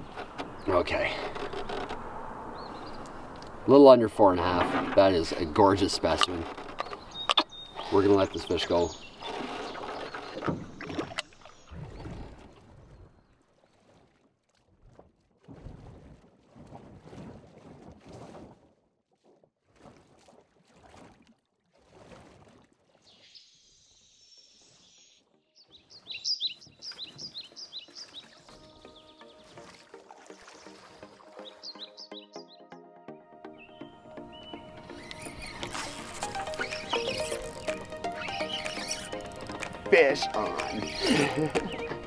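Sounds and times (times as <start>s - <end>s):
water splashing: 0.0s - 23.9s, 24.6s - 32.2s, 34.1s - 42.0s
soft water sloshes: 4.4s - 23.4s, 24.6s - 31.8s.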